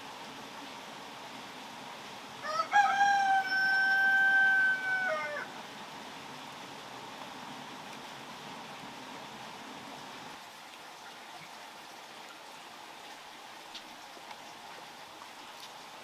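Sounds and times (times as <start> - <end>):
steady background hiss: 0.0 - 16.0
rooster crowing: 2.4 - 5.5.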